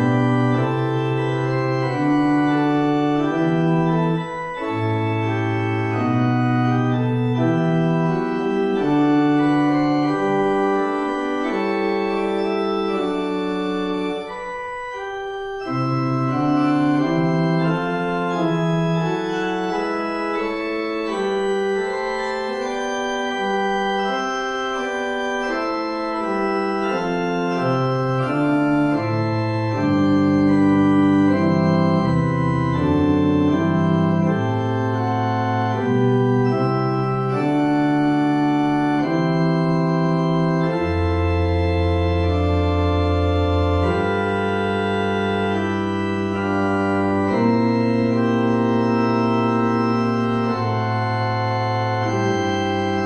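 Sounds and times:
organ playing slow chords: 0:00.0 - 0:53.0.

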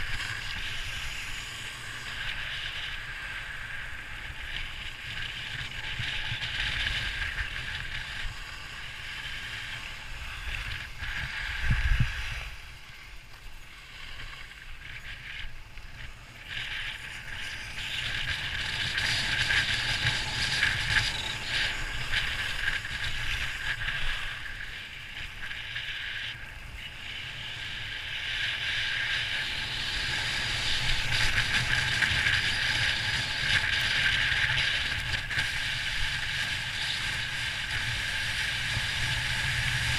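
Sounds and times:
wind rumble on microphone: 0:00.0 - 0:39.9
skis scraping on packed snow: 0:28.0 - 0:39.9.

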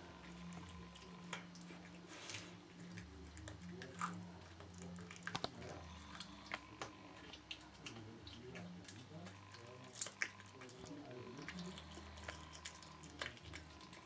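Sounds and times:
cat chewing and crunching: 0:00.0 - 0:14.0.

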